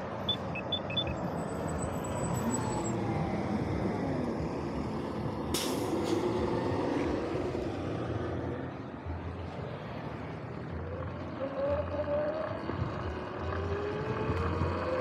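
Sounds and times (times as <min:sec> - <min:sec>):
bus engine passing: 0:00.0 - 0:15.0
air brakes hissing: 0:05.5 - 0:06.4.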